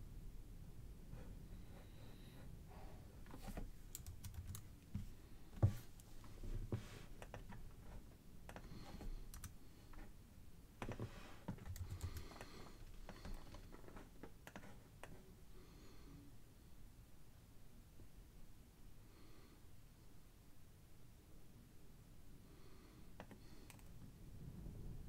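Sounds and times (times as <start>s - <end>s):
keyboard and mouse clicking: 3.5s - 4.7s, 7.2s - 7.6s, 8.4s - 9.6s, 10.8s - 13.6s, 14.4s - 15.2s, 23.2s - 23.9s.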